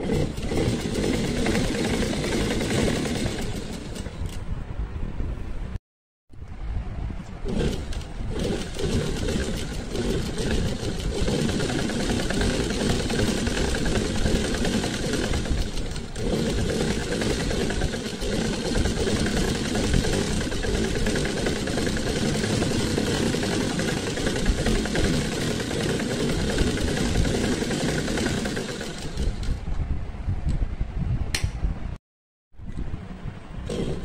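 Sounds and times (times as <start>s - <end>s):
sewing machine stitching: 0.0s - 4.5s, 7.4s - 29.6s, 33.6s - 34.0s.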